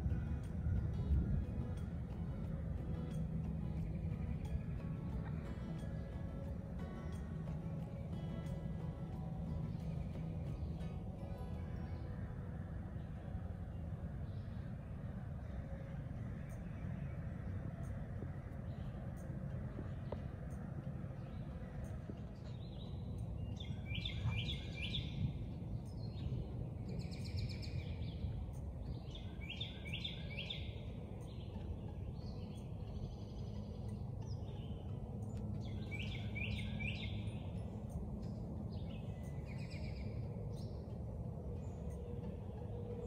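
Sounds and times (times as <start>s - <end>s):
low background rumble: 0.0s - 43.0s
songbirds singing: 0.0s - 43.0s.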